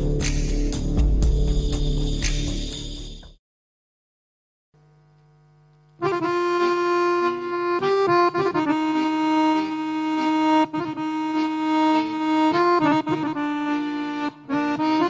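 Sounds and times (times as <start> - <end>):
button accordion playing: 6.0 - 15.0.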